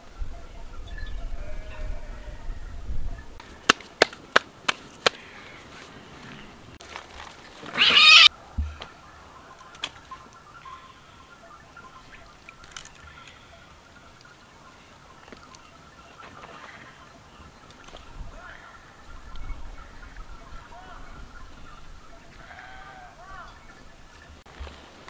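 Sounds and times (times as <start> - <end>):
short animal cry: 7.7 - 8.3.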